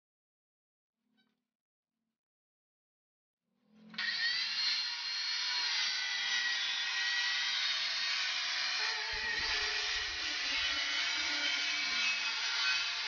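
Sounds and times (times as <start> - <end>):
circular saw cutting wood: 3.9 - 13.0.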